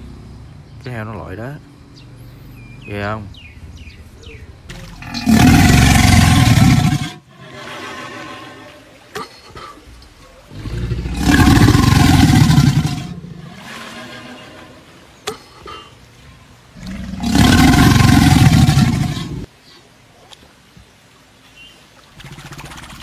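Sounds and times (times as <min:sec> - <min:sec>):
creature deep roar: 0:05.0 - 0:09.0, 0:10.4 - 0:14.8, 0:16.8 - 0:19.5.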